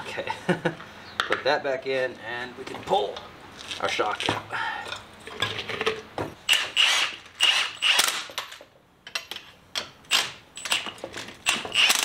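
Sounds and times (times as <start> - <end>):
impact wrench bursts: 6.5 - 8.4, 10.1 - 12.0.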